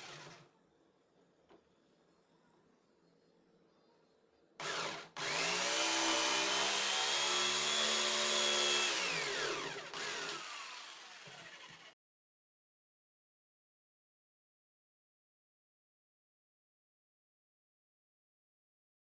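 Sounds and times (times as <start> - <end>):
electric jigsaw sawing wood: 0.0 - 0.5, 4.6 - 12.0.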